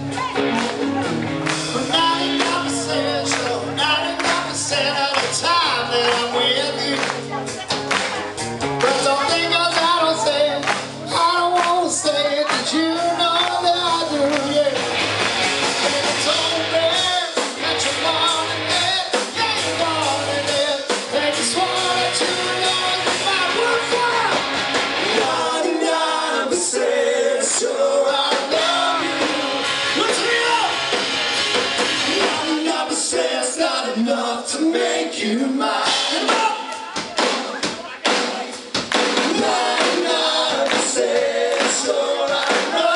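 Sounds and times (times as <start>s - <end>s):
electric guitars: 0.0s - 33.8s
rock band playing live: 0.0s - 34.6s, 35.6s - 42.9s
drums: 0.0s - 42.9s
person singing: 1.7s - 7.4s, 8.8s - 14.8s, 15.8s - 24.4s.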